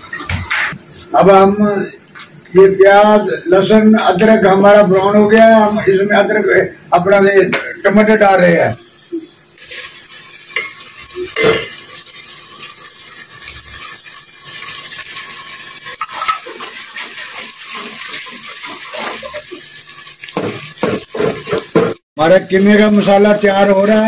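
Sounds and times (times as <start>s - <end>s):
onions sizzling in hot fat: 0.0s - 24.0s
metal ladle scraping pot: 16.0s - 16.7s
knock in pot: 20.4s - 22.0s.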